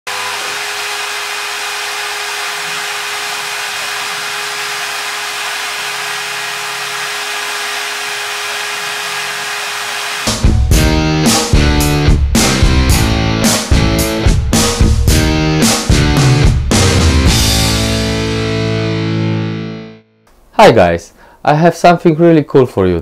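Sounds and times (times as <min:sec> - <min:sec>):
milling machine hiss and whine: 0:00.1 - 0:10.4
heavy metal guitar music: 0:10.2 - 0:20.0.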